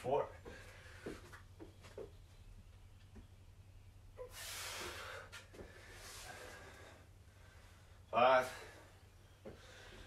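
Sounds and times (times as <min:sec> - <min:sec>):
man exhaling forcefully: 0:04.2 - 0:05.3.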